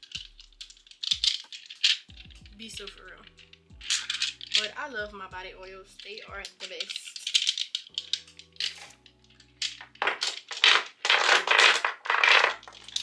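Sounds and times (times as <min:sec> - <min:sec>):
glass bottles clinking: 0:03.2 - 0:04.8, 0:06.0 - 0:13.0.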